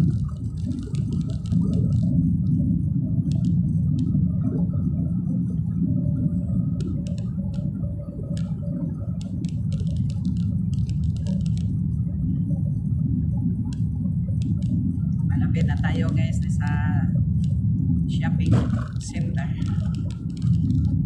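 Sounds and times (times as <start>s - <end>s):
faint ticks: 0.0s - 2.6s, 3.2s - 4.8s, 6.4s - 12.4s, 13.6s - 17.6s, 18.7s - 21.0s
car engine and tyres rumbling: 0.0s - 21.0s.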